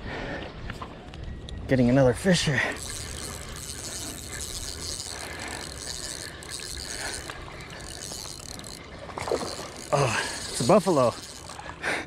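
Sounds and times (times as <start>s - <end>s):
fishing reel cranking: 2.1s - 12.0s.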